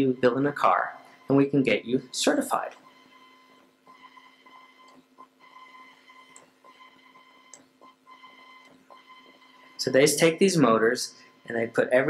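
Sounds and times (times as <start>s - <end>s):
soft clicks: 7.4s - 7.7s.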